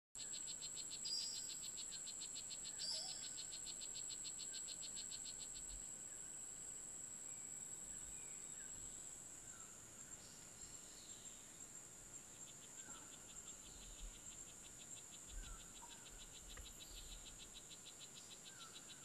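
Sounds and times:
fast pulsing insect trill: 0.2 - 6.8, 12.3 - 19.0.

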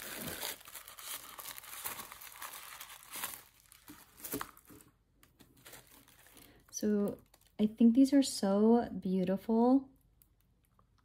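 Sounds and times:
tissue paper crinkling: 0.0 - 7.6.

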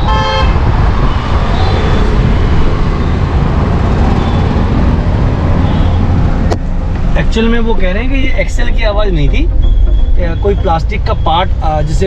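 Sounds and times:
car road and engine rumble: 0.0 - 12.0
short pitched tone: 9.0 - 11.6.

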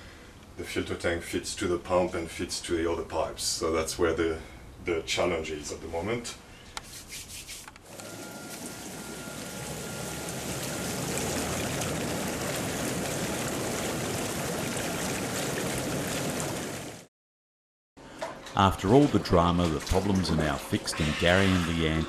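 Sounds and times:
hot tub jets churning water: 7.8 - 17.1, 18.0 - 22.0.

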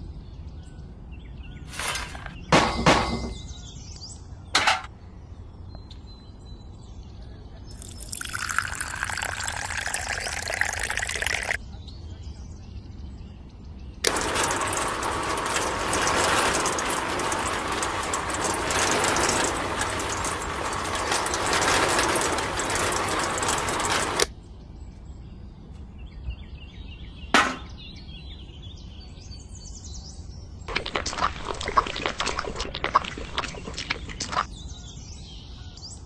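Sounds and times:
concrete mix scraping out: 1.7 - 2.5, 7.8 - 11.6, 14.0 - 24.3
small concrete mixer rattling: 1.7 - 3.6, 7.7 - 11.6, 14.0 - 24.3
sharp knock: 27.3 - 27.8.

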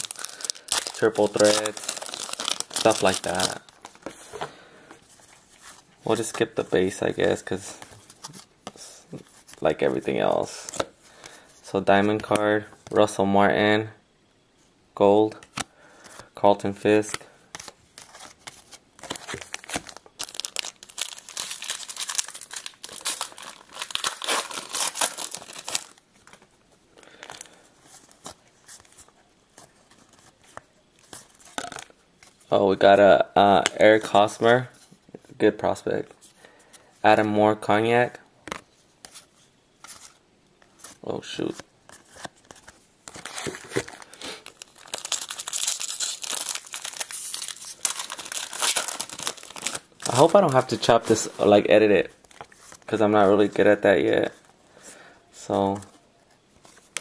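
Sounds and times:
wrapper tearing and crinkling: 0.0 - 4.0, 18.0 - 26.0, 43.1 - 51.2
cards rustling and clicking: 0.0 - 4.5, 17.0 - 26.5.

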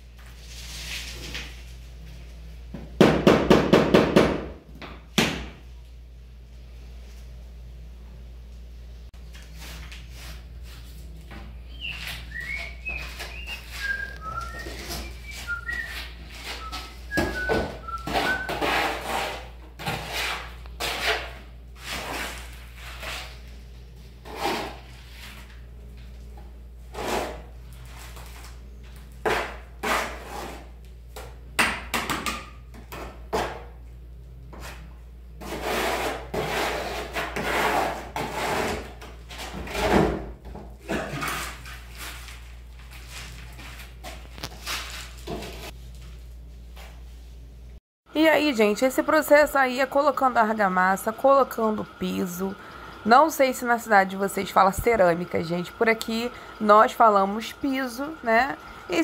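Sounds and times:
whistled notes: 11.7 - 18.6
trowel scraping wet mortar: 18.0 - 23.5, 24.2 - 25.5, 29.3 - 30.7, 35.4 - 40.0.

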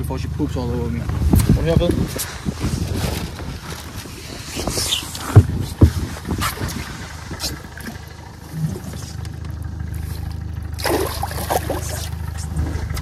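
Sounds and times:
boat motor humming: 0.0 - 13.0
fish splashing in water: 4.7 - 12.9.

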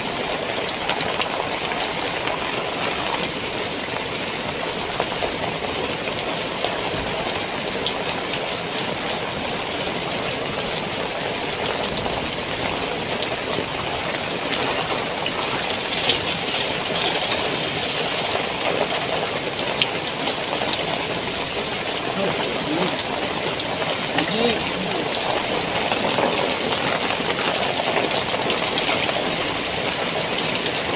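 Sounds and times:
heavy rain on a tent: 0.0 - 30.9.

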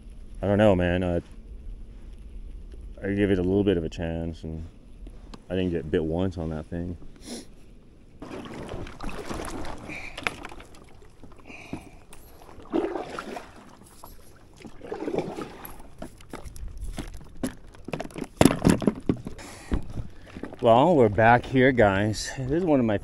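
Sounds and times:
water lapping around boat: 0.0 - 23.0
knocks and clicks against hull: 8.2 - 21.5.

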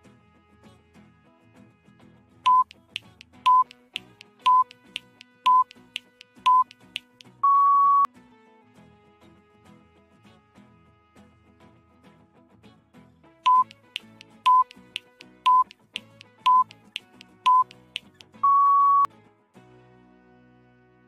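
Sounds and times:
soft background music: 2.3 - 11.7, 13.4 - 21.0
longer higher beep: 2.5 - 2.7, 3.5 - 3.7, 4.4 - 4.7, 5.5 - 5.7, 6.5 - 6.7, 7.4 - 8.1, 13.5 - 13.7, 14.5 - 14.7, 15.5 - 15.7, 16.5 - 16.7, 17.5 - 17.7, 18.4 - 19.1
short electronic beeps: 2.5 - 2.7, 3.5 - 3.7, 4.4 - 4.7, 5.5 - 5.7, 6.4 - 6.7, 7.4 - 8.1, 13.5 - 13.8, 14.5 - 14.8, 15.5 - 15.7, 16.4 - 16.7, 17.4 - 17.7, 18.4 - 19.1
timer ticking: 2.5 - 8.1, 13.5 - 19.1.

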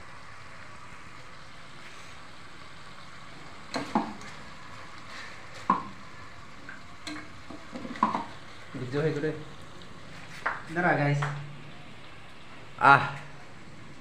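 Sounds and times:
food sizzling in a pot: 0.0 - 14.0
metal ladle clanking on pot: 7.0 - 8.3.

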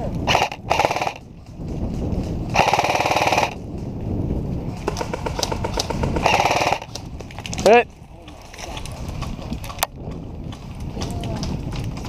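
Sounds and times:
airsoft rifles firing full auto: 0.3 - 1.2, 2.5 - 3.6, 4.9 - 7.0.

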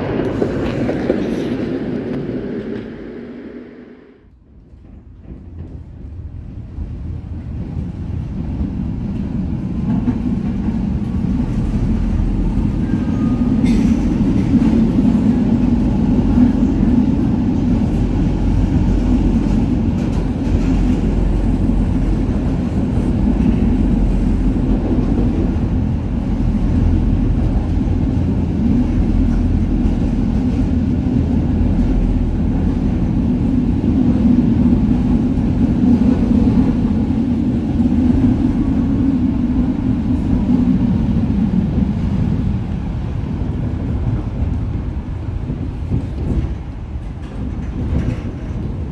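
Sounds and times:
tram rumbling on rails: 0.0 - 48.9.

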